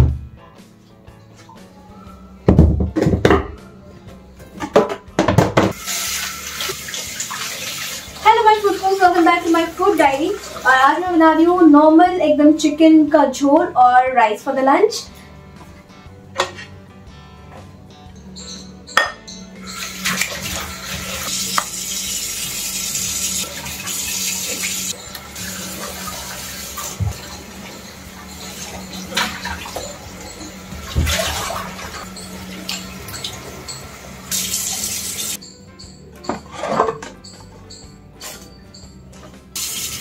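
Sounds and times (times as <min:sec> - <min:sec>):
knocks against sink and bowl: 0:02.5 - 0:03.6, 0:04.6 - 0:05.8
tap water running into sink: 0:05.5 - 0:11.2, 0:19.7 - 0:35.4, 0:39.6 - 0:40.0.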